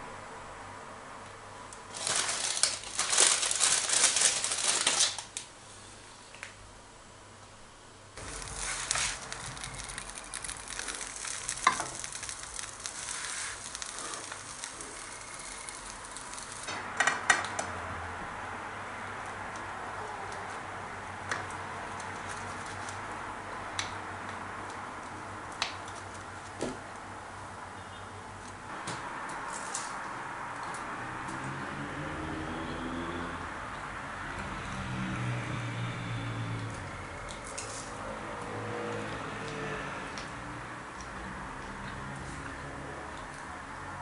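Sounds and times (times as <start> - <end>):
food sizzling in a frying pan: 8.2 - 16.8.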